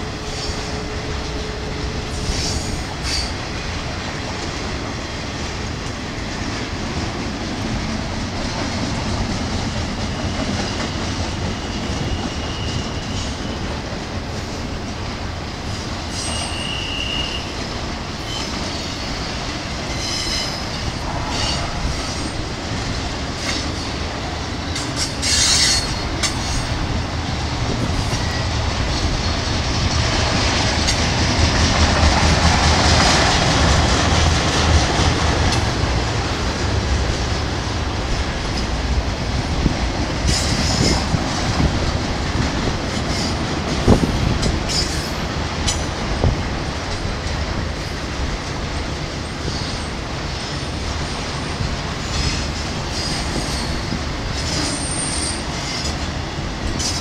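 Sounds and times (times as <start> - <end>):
train wheel squeals: 0.0 - 3.7, 9.6 - 14.7, 15.6 - 22.5, 23.3 - 27.0, 27.6 - 31.1, 40.2 - 41.7, 42.9 - 46.3, 48.8 - 57.0
freight train rumbling past: 0.0 - 57.0.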